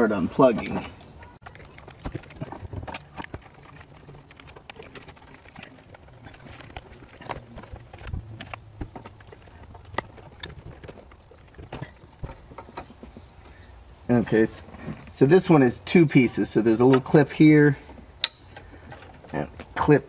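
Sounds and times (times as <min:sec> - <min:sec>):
wires rustling: 0:00.0 - 0:20.0.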